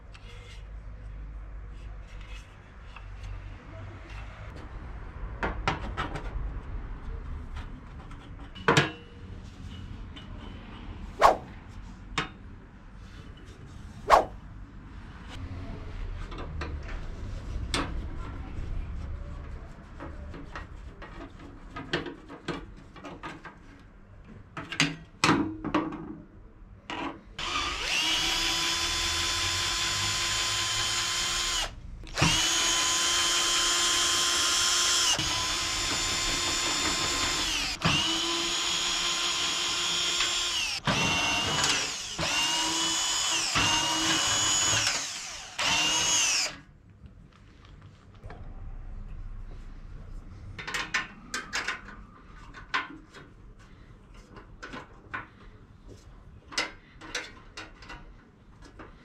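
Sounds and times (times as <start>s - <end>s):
cordless drill-driver whirring: 27.4s - 46.6s
screwdriver and screws clicking: 27.4s - 46.6s.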